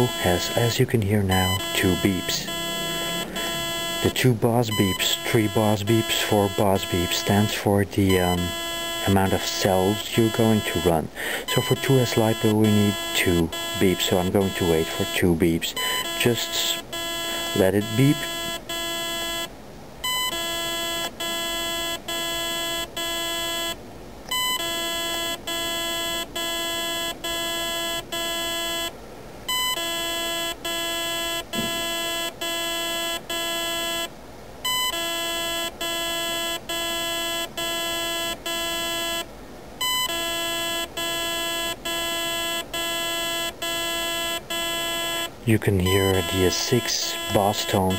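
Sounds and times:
electronic controller beeping: 0.0s - 23.7s, 24.3s - 28.9s, 39.8s - 47.9s.

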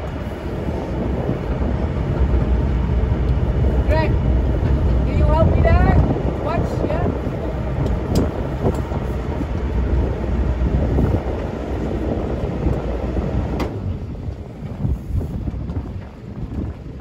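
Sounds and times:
boat engine rumbling: 0.0s - 17.0s
wind buffeting microphone: 0.0s - 17.0s.

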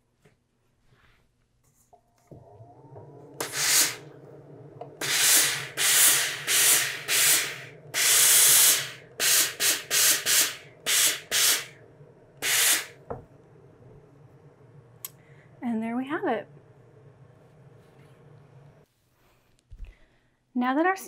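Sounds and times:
steam iron hissing: 2.4s - 11.8s, 12.4s - 13.1s.

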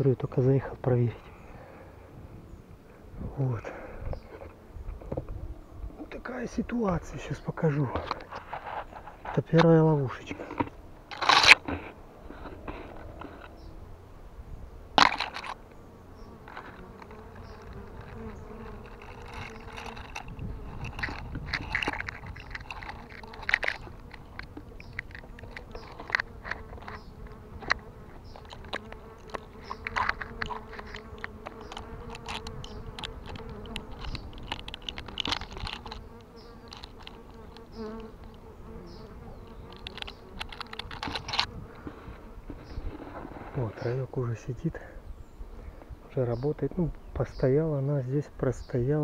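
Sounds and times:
honey bees buzzing: 0.1s - 47.9s
sharp clicks and knocks: 16.4s - 38.4s, 39.5s - 41.5s.

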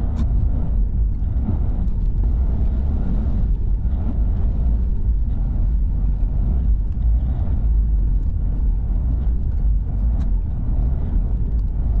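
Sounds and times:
low rumble of tyres and engine: 0.0s - 12.0s
light ticks: 6.6s - 7.4s, 9.1s - 10.6s, 11.4s - 12.0s.

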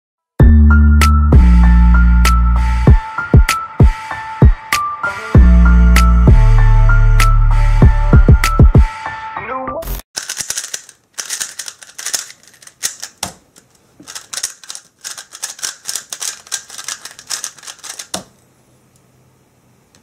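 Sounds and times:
plastic puzzle cube clicking: 10.2s - 18.4s.

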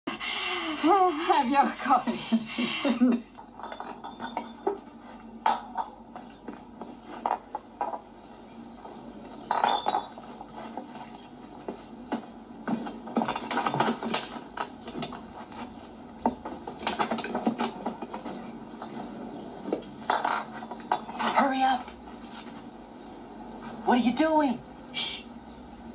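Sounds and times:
glass and crockery clinking: 3.4s - 8.1s, 9.3s - 10.4s, 16.2s - 19.4s, 20.0s - 21.6s.

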